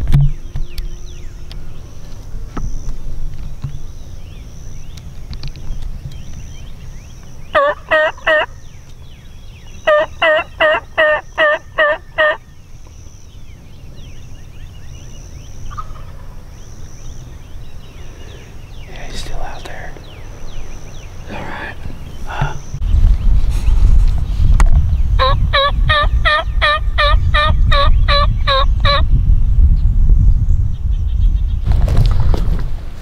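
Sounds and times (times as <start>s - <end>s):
turkey gobbling: 7.6s - 8.5s, 9.9s - 12.4s, 15.7s - 16.4s, 25.2s - 29.0s.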